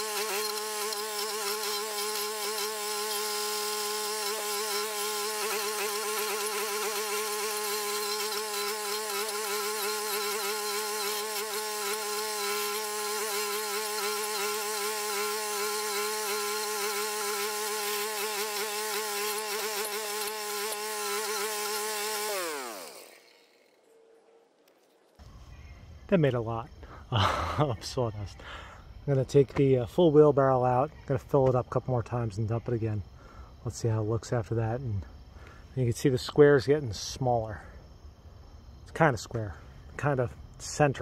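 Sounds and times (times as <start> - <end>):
cutter wheel grinding stump: 0.0 - 23.9.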